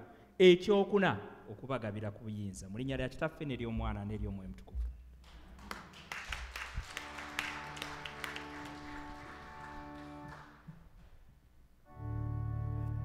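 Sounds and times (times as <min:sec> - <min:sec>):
instrumental music of held chords: 0:11.8 - 0:13.0.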